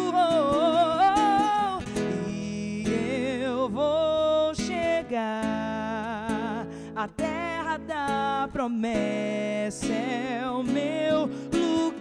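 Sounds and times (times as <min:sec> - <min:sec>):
woman singing gospel: 0:00.0 - 0:05.0
acoustic guitar: 0:00.0 - 0:12.0.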